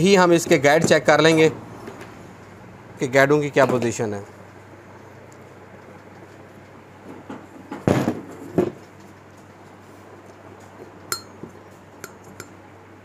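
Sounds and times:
metal ringing: 11.1 - 12.6.

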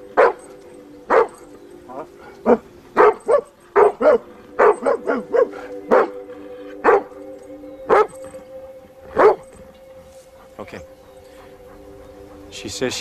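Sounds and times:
dog barking: 0.2 - 0.5, 1.1 - 6.2, 6.8 - 7.2, 7.9 - 8.2, 9.1 - 9.6.

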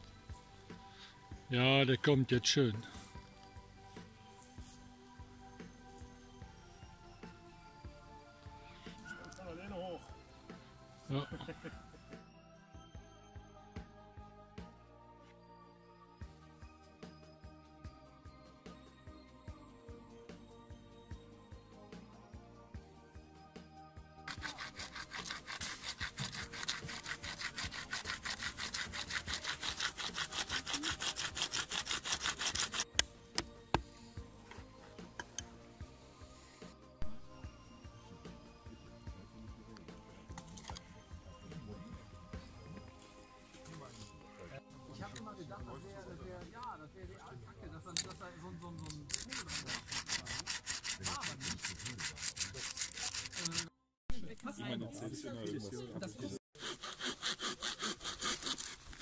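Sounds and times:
steel blade grinding on stone: 24.3 - 33.0, 49.0 - 53.7, 56.6 - 59.0
stick rasping on concrete: 24.3 - 33.9, 48.8 - 53.7, 56.6 - 59.0.

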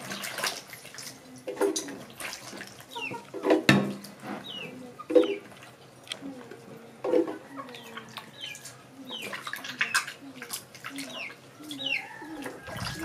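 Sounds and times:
hands swishing vegetables in water: 0.0 - 3.2
water splashes: 0.0 - 4.1, 9.2 - 13.0
chickens clucking: 2.8 - 13.0
birds chirping: 4.4 - 13.0.

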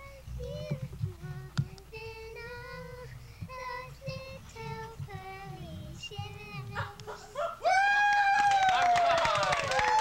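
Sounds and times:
low rumble and thumps: 0.0 - 7.2
child singing: 0.0 - 7.4.

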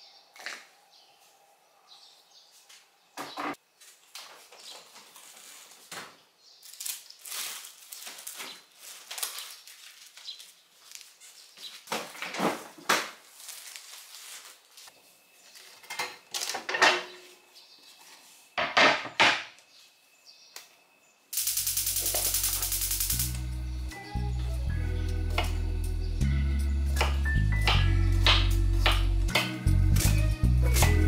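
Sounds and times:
plastic bag rustling: 4.4 - 6.0, 6.6 - 15.0.

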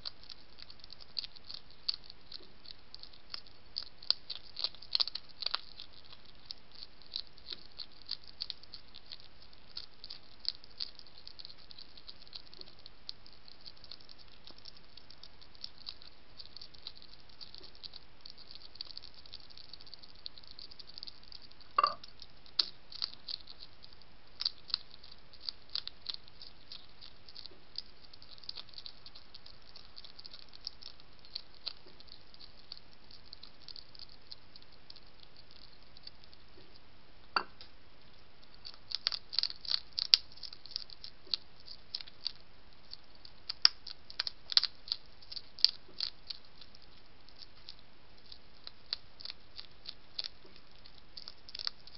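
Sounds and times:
hedgehog crunching dry food: 0.0 - 51.9.

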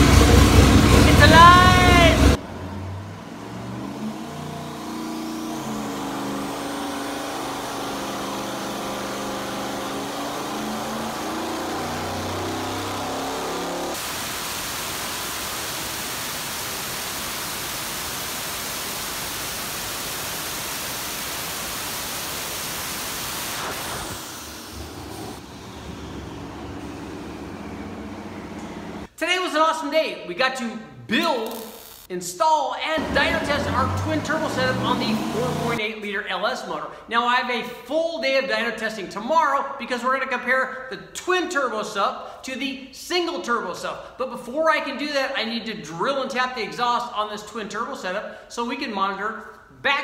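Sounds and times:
turbo whine: 0.0 - 2.4, 3.0 - 29.1
turbocharged engine roaring: 0.0 - 14.1, 23.4 - 29.1, 33.0 - 35.8.

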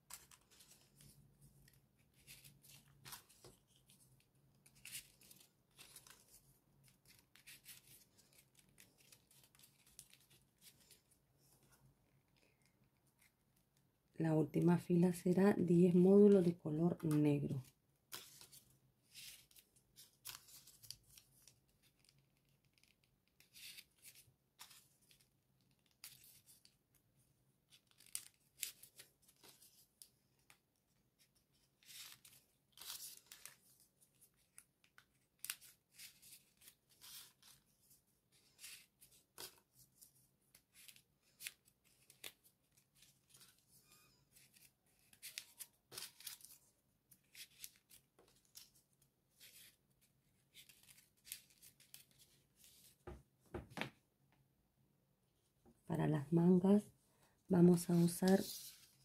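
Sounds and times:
paper rustling and scraping: 57.7 - 59.0.

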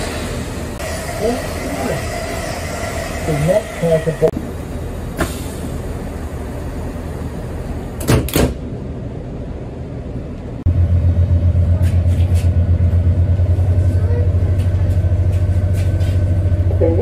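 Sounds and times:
diesel engine throbbing drone: 0.0 - 8.0, 8.7 - 17.0
train door shutting: 5.1 - 5.8, 8.0 - 8.7.

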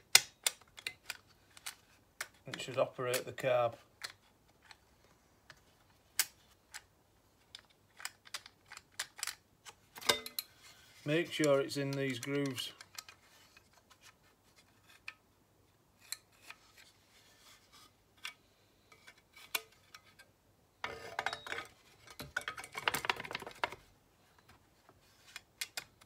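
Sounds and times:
plastic rubbing and clattering: 20.8 - 23.9
plastic cover clicking and knocking: 22.2 - 23.8.

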